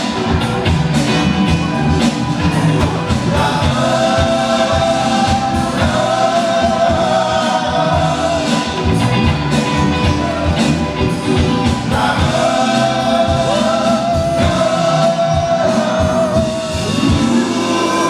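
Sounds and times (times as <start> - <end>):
acoustic and electric guitars: 0.0 - 18.0
drums: 0.0 - 18.0
keyboard: 0.0 - 18.0
men singing together: 3.1 - 9.0, 11.6 - 18.0.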